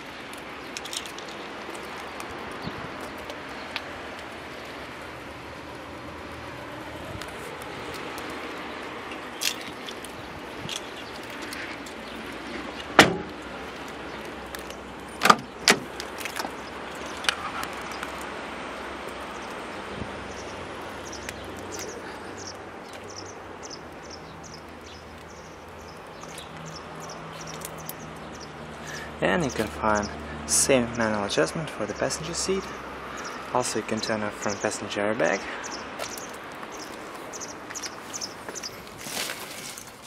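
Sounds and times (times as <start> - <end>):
car door latch clicks and knocks: 13.0 - 13.4, 15.2 - 15.9.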